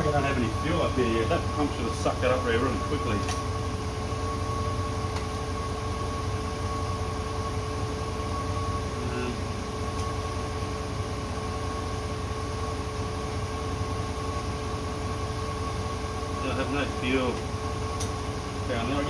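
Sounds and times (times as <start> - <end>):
steady machine hum: 0.0 - 19.0.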